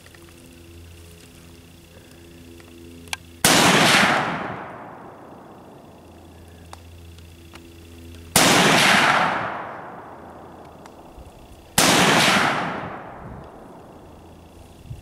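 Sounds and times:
rifle shots: 3.4s - 5.5s, 8.3s - 11.1s, 11.8s - 13.9s.

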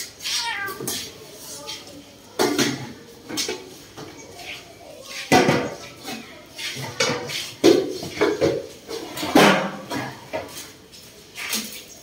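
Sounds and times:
cats crying and growling: 0.0s - 1.2s.

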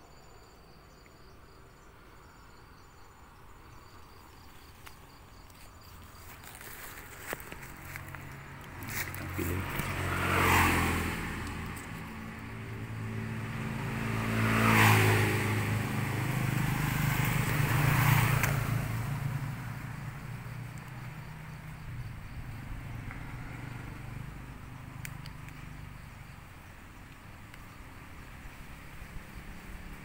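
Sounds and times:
vehicle engine passing by: 6.4s - 30.0s.

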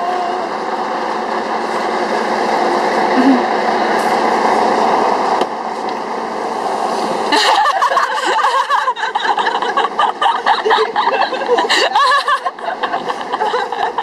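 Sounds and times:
train rushing noise: 0.0s - 14.0s
person laughing: 3.2s - 3.5s, 7.3s - 14.0s.

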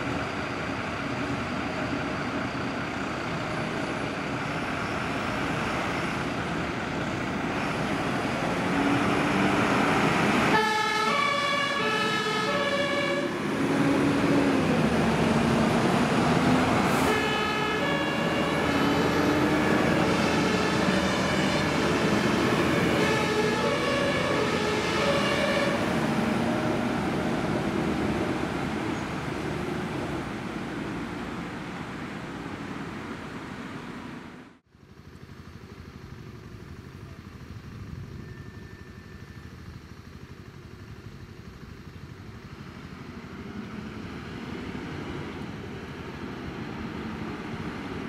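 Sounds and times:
heavy diesel engines running: 0.0s - 48.0s
two-tone sirens: 1.4s - 31.2s, 37.3s - 39.8s
engine revving: 3.6s - 31.7s.

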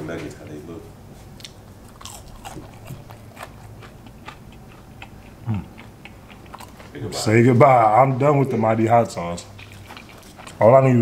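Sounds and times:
person chewing crunchy food: 1.4s - 7.1s, 9.1s - 10.9s.

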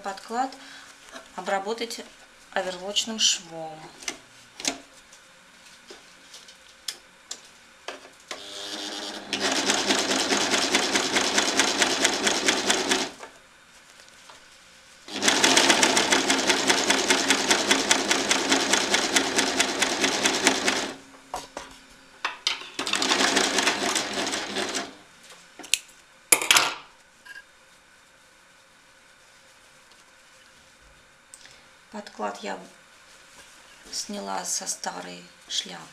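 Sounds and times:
overlock machine stitching: 8.4s - 13.2s, 15.1s - 21.0s, 22.8s - 25.0s.

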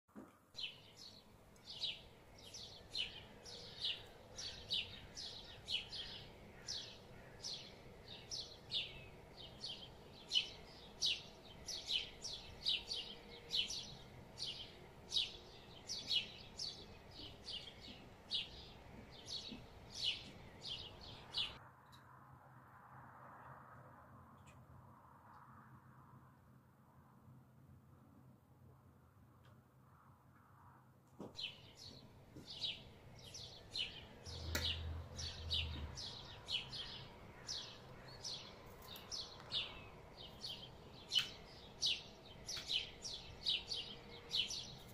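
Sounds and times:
bird chirping: 0.6s - 21.6s, 31.4s - 44.9s.

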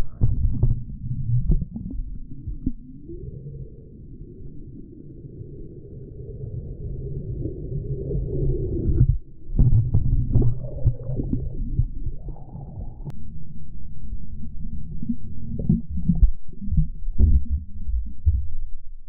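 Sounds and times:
underwater thumps and clicks: 0.0s - 2.8s, 9.0s - 12.4s, 15.6s - 18.6s
muffled underwater rumble: 0.0s - 19.0s.

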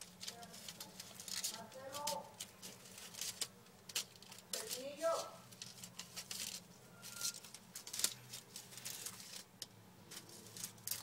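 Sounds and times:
claws scratching newspaper: 0.0s - 11.0s.

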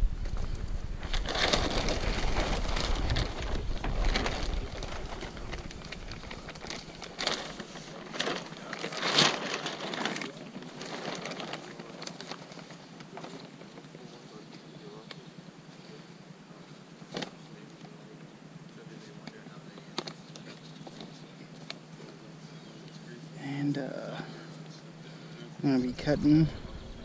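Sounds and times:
tarp rustling and crinkling: 0.0s - 15.1s, 17.1s - 18.1s.

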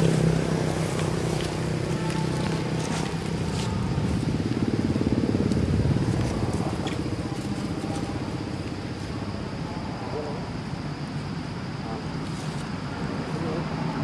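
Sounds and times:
small engine running: 0.0s - 8.5s.

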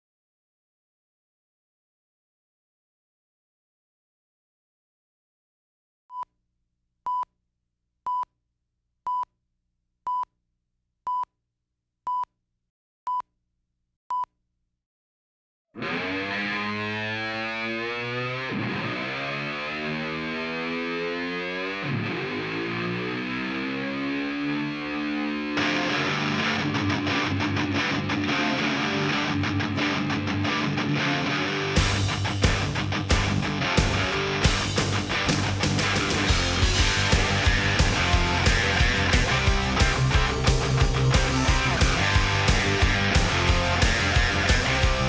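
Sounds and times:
distorted electric guitar rock music: 15.8s - 45.0s.

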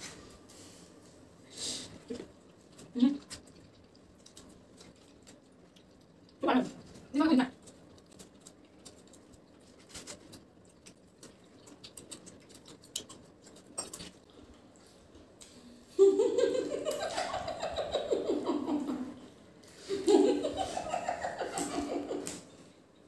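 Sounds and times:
eating clicks and rustles: 0.0s - 15.6s, 16.4s - 23.0s
closed-mouth laughter: 16.0s - 22.5s.

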